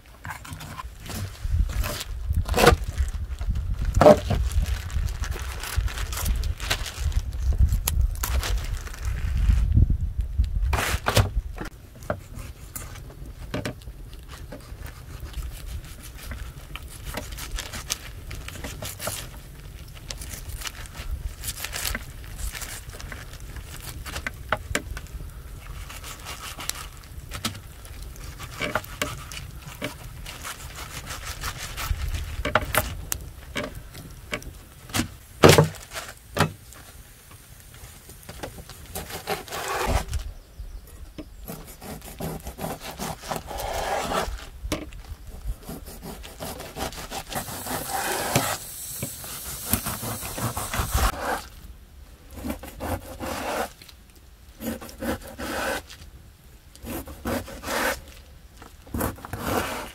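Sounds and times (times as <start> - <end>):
hands handling fish on plastic: 10.8 - 37.4.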